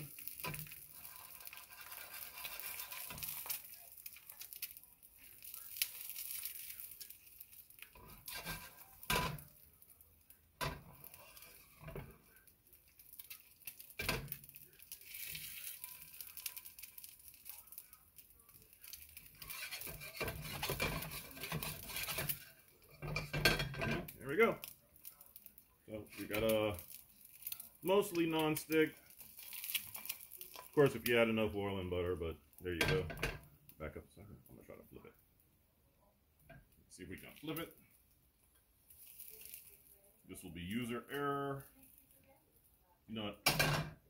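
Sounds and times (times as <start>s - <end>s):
metal scraping: 0.0s - 3.6s, 8.0s - 9.5s, 19.3s - 24.1s
egg sizzling in pan: 0.0s - 31.6s, 37.4s - 42.4s.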